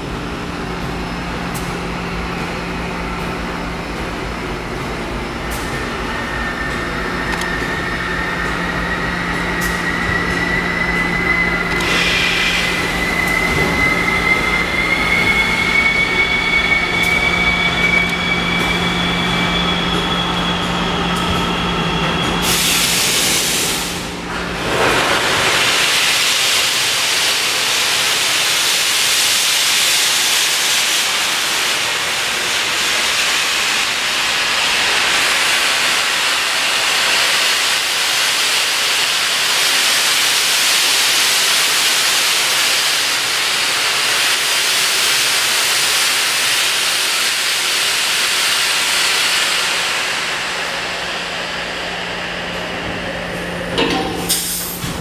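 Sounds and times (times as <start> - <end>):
steam hissing: 5.5 - 55.0
steady hum: 48.7 - 55.0.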